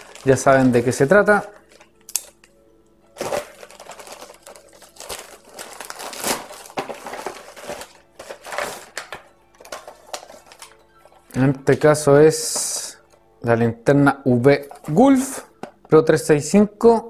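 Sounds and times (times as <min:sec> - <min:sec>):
paper mailer crinkling and tearing: 0:00.0 - 0:02.4, 0:03.2 - 0:10.8.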